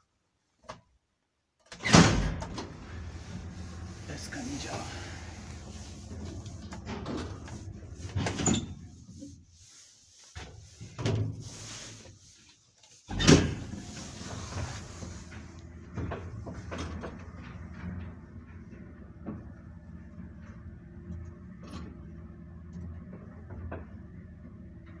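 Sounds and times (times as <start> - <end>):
lift running with low hum: 2.4 - 12.0.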